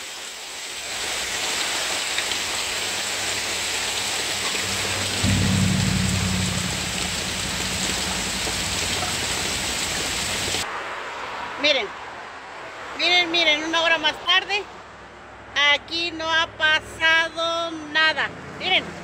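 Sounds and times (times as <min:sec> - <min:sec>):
wind: 0:00.0 - 0:19.0
heavy rain pouring: 0:00.8 - 0:10.6
thunder rumbling: 0:04.4 - 0:10.6.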